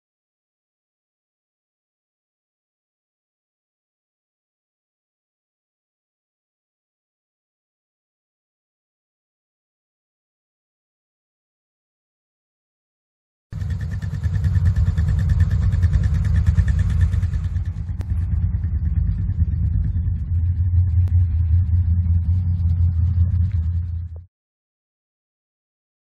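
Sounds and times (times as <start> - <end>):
vehicle engine idling: 13.6 - 24.3.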